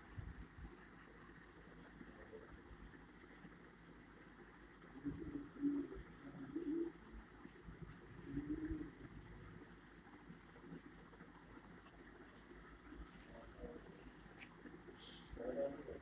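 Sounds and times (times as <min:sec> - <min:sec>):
pen scratching on paper: 0:07.2 - 0:13.0.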